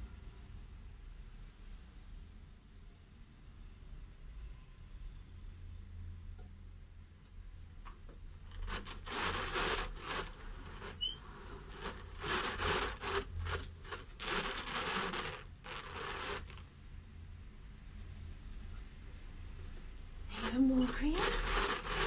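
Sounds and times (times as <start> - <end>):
drum carder brushing wool: 8.5 - 16.6, 20.3 - 22.0
high squeaks: 8.7 - 16.6.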